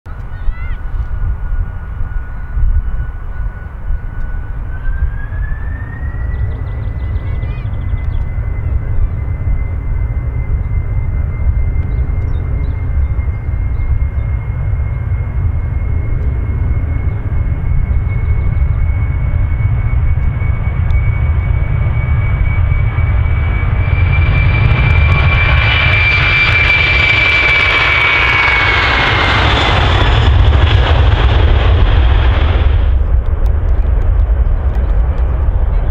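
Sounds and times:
jet engines deep rumble: 0.1 - 35.9
jet engine crackle: 7.8 - 35.9.

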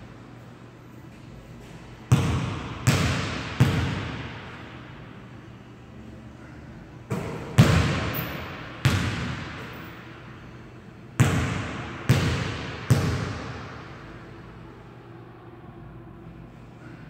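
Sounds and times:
basketball bouncing on wooden floor: 7.6 - 9.6, 11.2 - 13.5.

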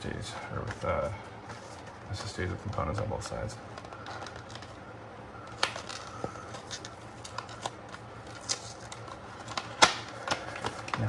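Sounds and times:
low hum of room equipment: 0.0 - 11.0
plastic rustling: 0.3 - 11.0.

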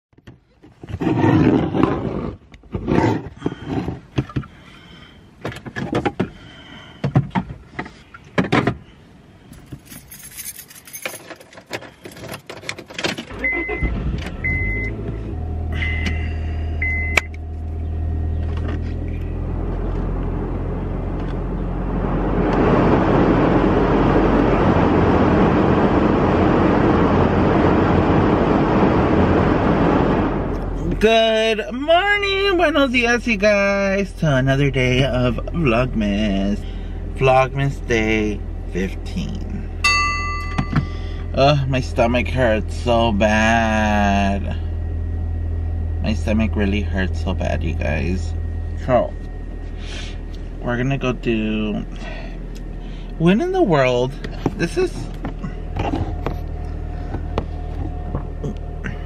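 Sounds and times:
car engine starting and idling: 0.4 - 59.0
clicks and knocks in car: 5.4 - 6.4, 7.0 - 8.8, 54.2 - 58.6
warning chime beeps: 13.4 - 17.4, 39.8 - 41.4, 44.6 - 55.8.

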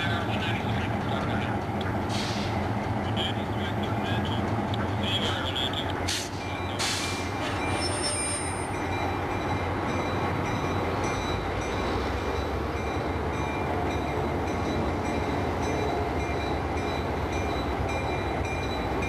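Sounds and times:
diesel locomotive engine rumble: 0.0 - 19.0
high-pitched wheel squeal: 7.4 - 8.8.

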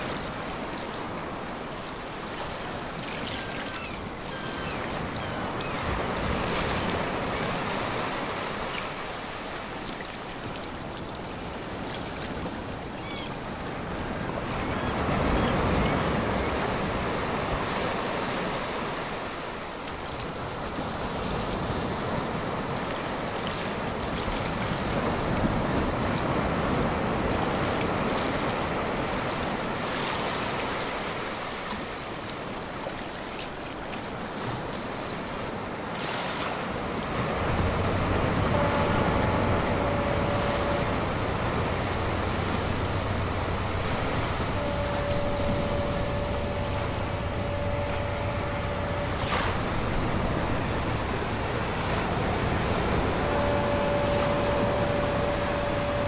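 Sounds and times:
waves breaking on shore: 0.0 - 56.0.

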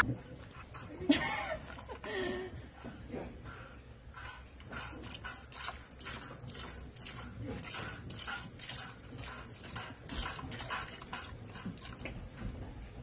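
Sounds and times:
milk squirting into plastic bucket: 4.6 - 12.2.

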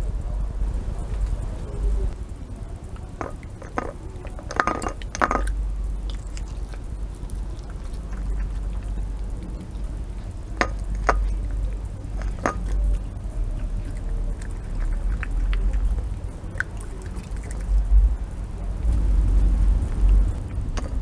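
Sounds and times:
low rumble: 0.0 - 21.0
fox cub chewing and lapping: 0.9 - 21.0.

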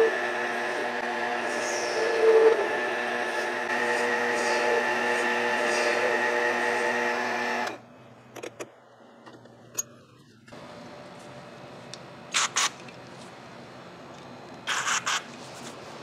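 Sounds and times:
mini lathe whining: 0.0 - 7.8.

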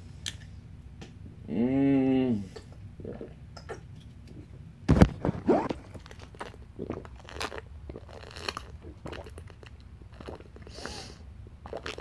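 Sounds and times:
person gulping while drinking: 2.6 - 10.7, 11.4 - 12.0
plastic water bottle crinkling: 4.9 - 6.6.

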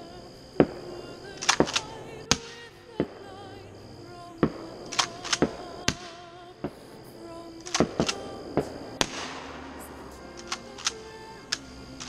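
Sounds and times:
music: 0.0 - 12.0
steady high tone: 0.0 - 12.0
gunfire and fireworks bangs: 7.8 - 9.9.

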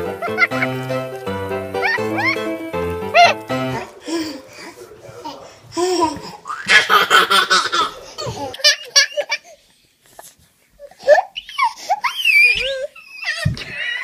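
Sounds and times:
baby laughing: 0.0 - 0.8, 1.8 - 2.5, 5.8 - 9.6
baby squealing: 1.8 - 2.5, 11.1 - 14.0.

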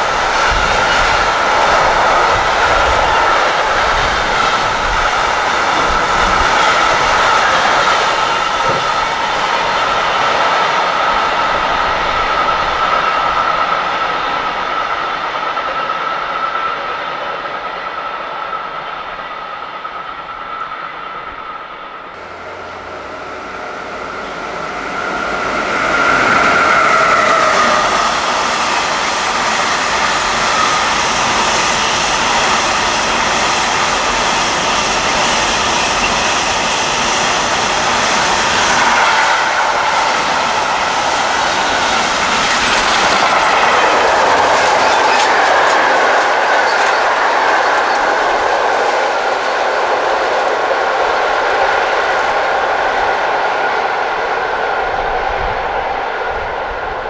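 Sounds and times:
freight train wheels clattering on rails: 0.0 - 20.8, 22.2 - 54.2
high ringing tone: 22.2 - 28.1.

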